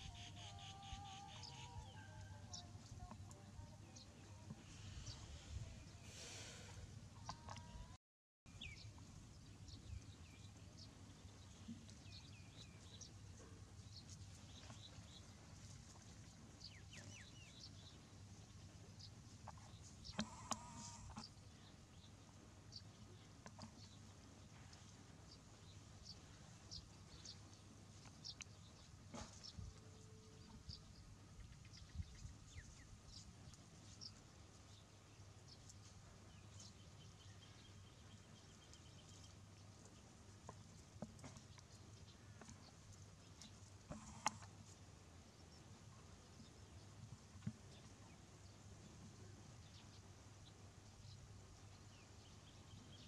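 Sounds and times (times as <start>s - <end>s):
birds chirping: 0.0s - 15.3s, 19.0s - 24.1s
faint ticks: 19.5s - 21.4s.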